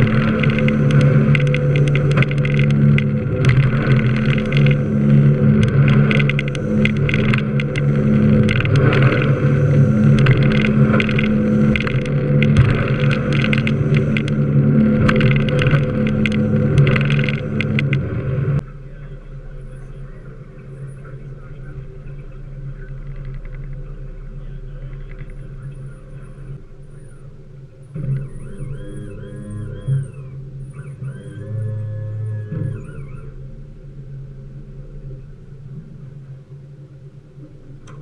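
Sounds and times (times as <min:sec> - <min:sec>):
wind on microphone: 0:00.0 - 0:27.2
boat engine idling: 0:00.0 - 0:38.0
boat engine running: 0:00.0 - 0:38.0.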